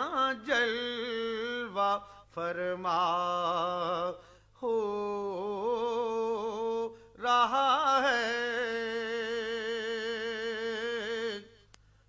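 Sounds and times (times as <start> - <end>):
singer breathing: 2.0 - 2.4, 4.2 - 4.6, 6.9 - 7.2.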